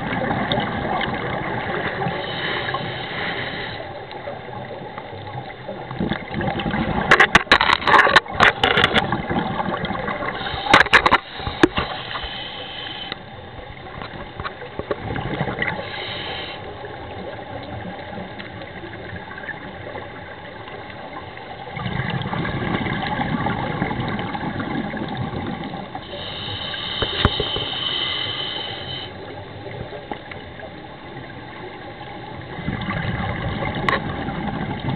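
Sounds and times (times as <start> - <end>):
regulator hissing inhalations: 2.2 - 3.9, 10.4 - 13.2, 15.8 - 16.8, 26.0 - 29.4.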